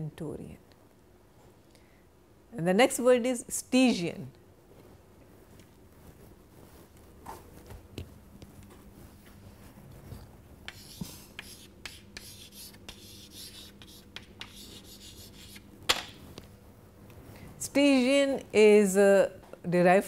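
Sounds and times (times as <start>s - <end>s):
chalk scratching on chalkboard: 10.7s - 15.7s.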